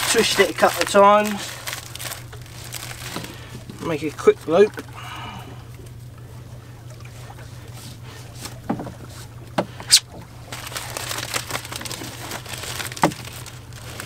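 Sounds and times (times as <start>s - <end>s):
mesh sack rustling: 0.0s - 4.1s, 9.9s - 14.0s
steady low hum: 0.0s - 14.0s.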